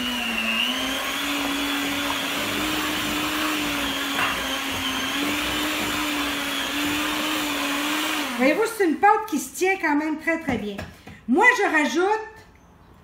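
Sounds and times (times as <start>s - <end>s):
electric hand mixer running: 0.0s - 8.8s.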